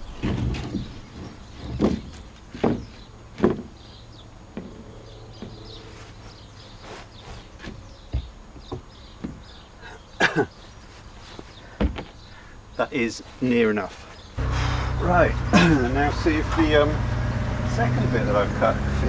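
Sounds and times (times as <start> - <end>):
boards knocking and thumping: 0.0 - 5.7, 7.4 - 10.4, 11.4 - 12.2
boards scraping: 0.0 - 9.7.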